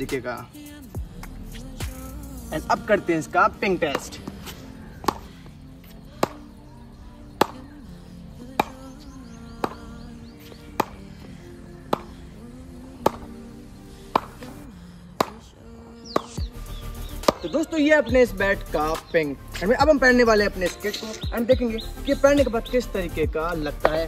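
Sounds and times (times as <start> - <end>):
background music: 0.0 - 24.0
ball knocking on cricket bat: 5.0 - 5.2.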